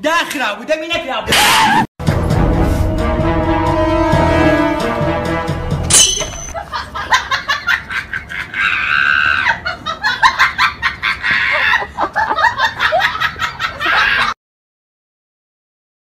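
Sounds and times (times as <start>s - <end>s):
music: 2.0s - 6.5s
sharp hit: 2.3s - 6.5s
people laughing: 6.5s - 14.4s.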